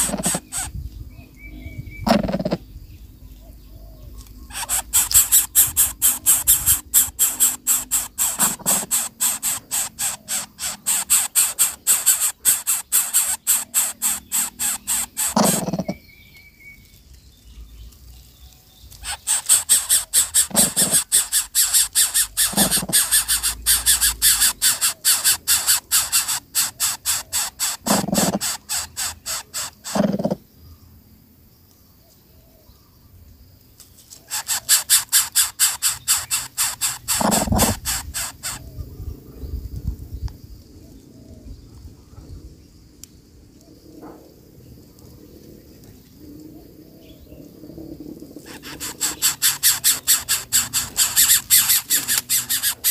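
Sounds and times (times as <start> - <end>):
raspy hissing begging calls: 0.0 - 0.8, 4.4 - 16.2, 18.9 - 30.5, 34.1 - 38.9, 48.4 - 52.9.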